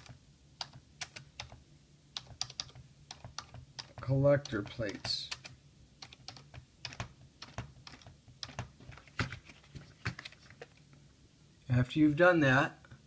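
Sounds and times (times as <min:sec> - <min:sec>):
keyboard typing: 0:00.0 - 0:01.6, 0:02.2 - 0:10.8.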